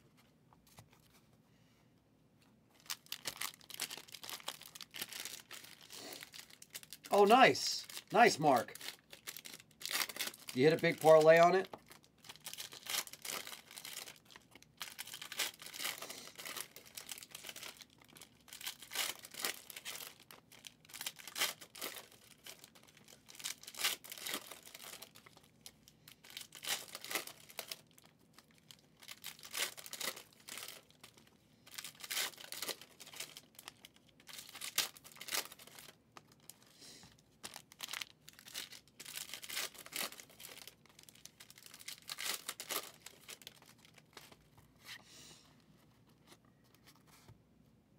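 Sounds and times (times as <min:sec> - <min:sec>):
trading cards rustling: 0:02.8 - 0:14.2, 0:37.5 - 0:44.4.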